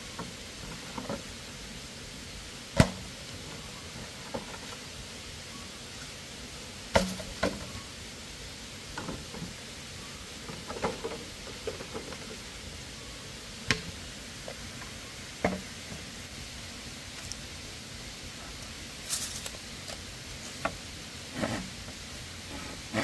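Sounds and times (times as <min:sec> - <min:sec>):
steady low hiss: 0:00.0 - 0:23.0.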